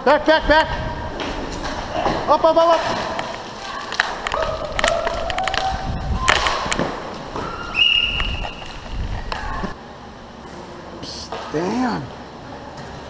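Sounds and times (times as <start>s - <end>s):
skate wheels rumbling on tiles: 0.6s - 9.8s
clacks of sticks and puck: 1.2s - 5.7s.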